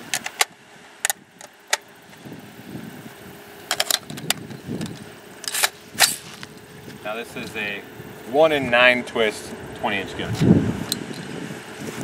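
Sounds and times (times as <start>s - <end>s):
metallic clicks of rifle handling: 3.7s - 6.6s
cartridges clicking into magazine: 5.4s - 6.2s.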